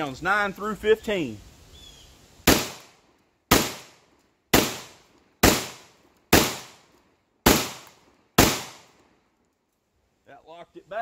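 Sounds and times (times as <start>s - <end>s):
shotgun shots: 2.4s - 8.9s.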